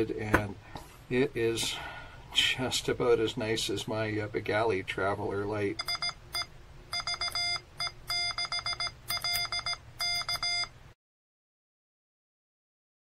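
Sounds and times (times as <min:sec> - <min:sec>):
morse code beeps: 0:05.8 - 0:10.7.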